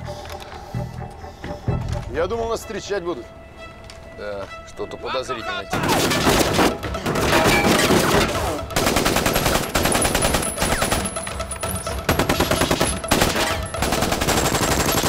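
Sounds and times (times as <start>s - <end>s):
rapid automatic gunfire: 5.8s - 11.2s, 12.1s - 15.0s.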